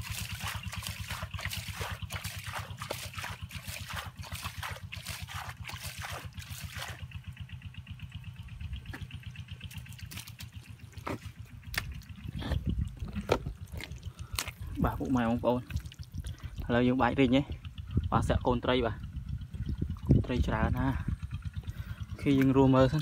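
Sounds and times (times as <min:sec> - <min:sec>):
hands splashing muddy water: 0:00.0 - 0:07.2, 0:09.0 - 0:16.8
low throbbing: 0:05.6 - 0:23.0.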